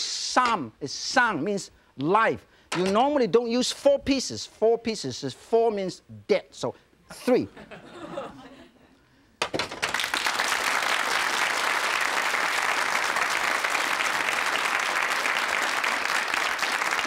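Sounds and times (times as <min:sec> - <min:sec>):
audience applauding: 0:09.8 - 0:17.0.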